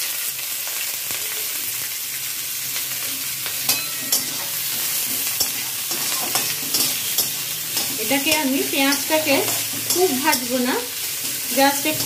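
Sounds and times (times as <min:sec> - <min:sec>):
food sizzling in hot oil: 0:00.0 - 0:12.0
spatula scraping pan: 0:03.7 - 0:12.0.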